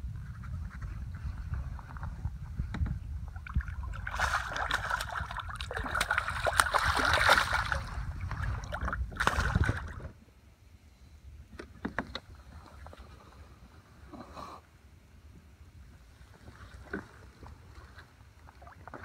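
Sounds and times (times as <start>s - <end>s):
water splashing against kayak: 0.4s - 10.2s, 16.2s - 19.0s.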